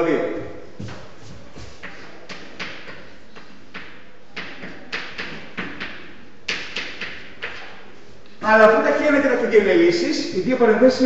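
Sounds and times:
scratchy writing strokes on a board: 0.8 - 5.9.

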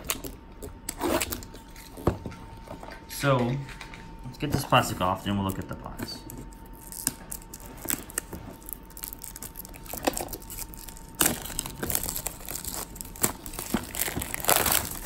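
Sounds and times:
plastic wrap crinkling: 6.5 - 15.0.

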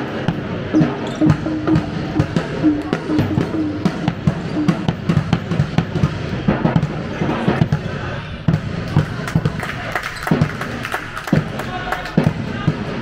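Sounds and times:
players' voices echoing: 0.0 - 13.0
ball bouncing on hall floor: 0.2 - 7.0.

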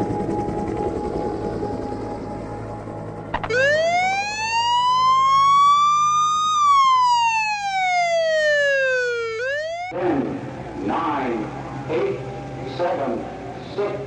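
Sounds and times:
emergency siren wailing: 0.0 - 14.0.

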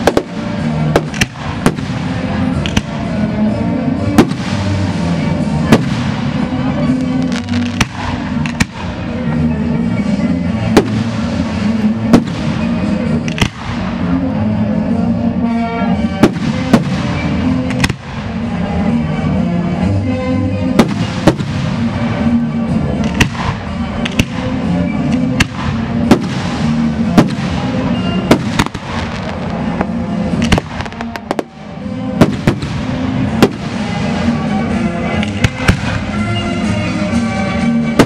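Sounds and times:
music playing: 0.0 - 38.0.

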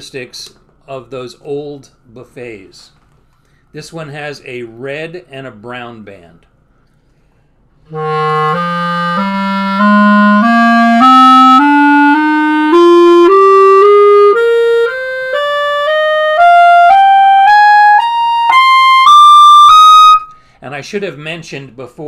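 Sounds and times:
clarinet playing a rising scale: 7.9 - 20.4.

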